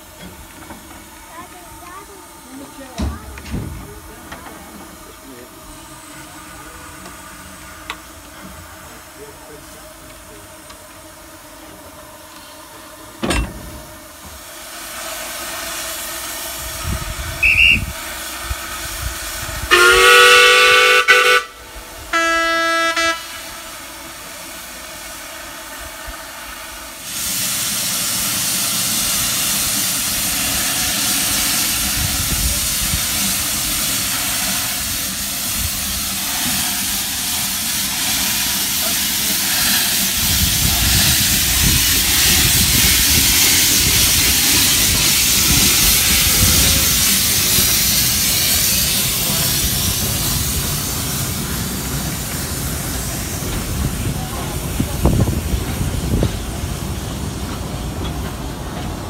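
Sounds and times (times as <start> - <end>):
loud hiss of steam: 0.0 - 59.0
steam locomotive whistle: 17.4 - 18.0, 19.7 - 23.6.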